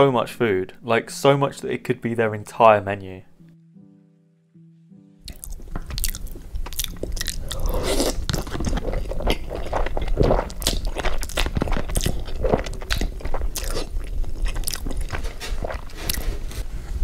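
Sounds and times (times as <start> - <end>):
wet chewing mouth sounds: 5.3 - 16.6.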